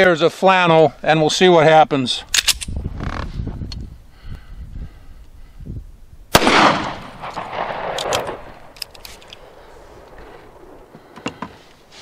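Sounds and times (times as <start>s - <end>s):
pistol shot with echo: 6.3s - 8.7s.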